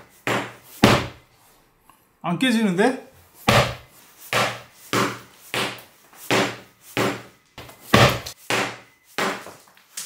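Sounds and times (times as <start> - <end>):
biscuit being banged: 0.3 - 1.2, 3.5 - 7.3, 7.9 - 9.5.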